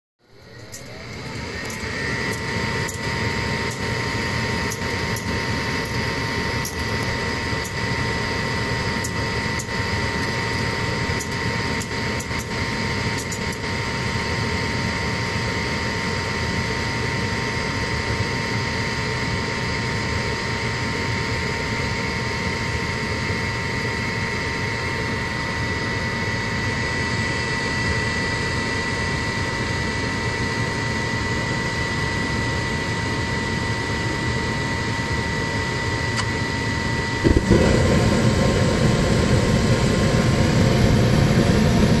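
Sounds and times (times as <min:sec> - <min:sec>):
mechanical hum: 0:00.2 - 0:42.0
motor high whine: 0:00.2 - 0:42.0
deep rush of air: 0:37.3 - 0:41.4.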